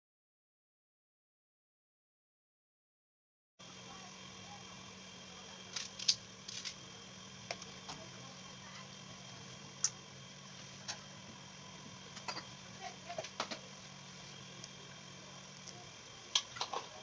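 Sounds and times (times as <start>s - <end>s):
steady low hum: 3.6s - 17.0s.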